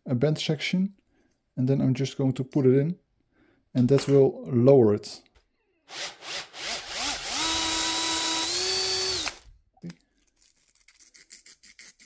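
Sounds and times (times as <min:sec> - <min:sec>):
cordless drill boring: 0:05.9 - 0:09.5.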